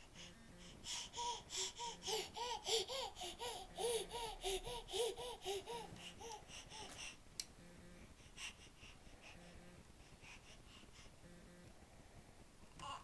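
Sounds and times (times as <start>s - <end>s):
baby laughing and babbling: 0.8s - 7.2s, 12.8s - 13.0s.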